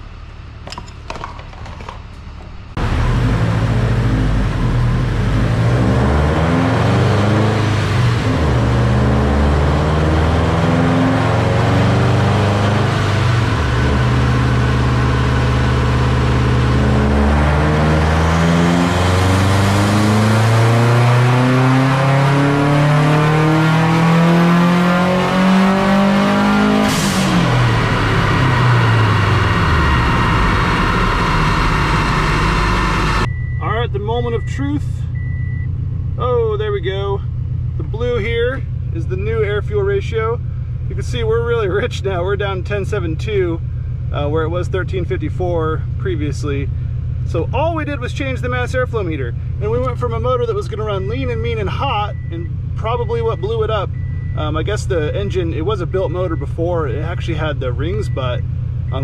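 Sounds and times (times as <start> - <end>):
car engine revving on dyno: 2.7 - 33.3.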